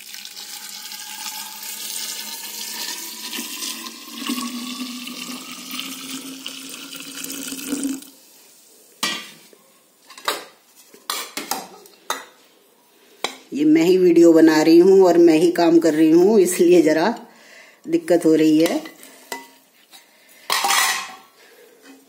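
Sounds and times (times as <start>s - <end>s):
water pouring into glass jar: 0.0s - 8.2s.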